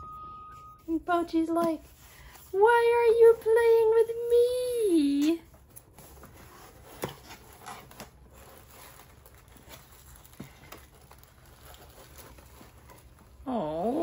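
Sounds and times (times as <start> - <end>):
packaging rustling: 5.5 - 13.5.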